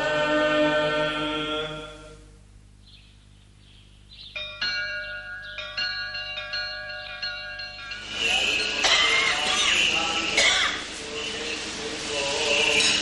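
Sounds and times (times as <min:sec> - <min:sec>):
church bells ringing: 0:04.4 - 0:10.4.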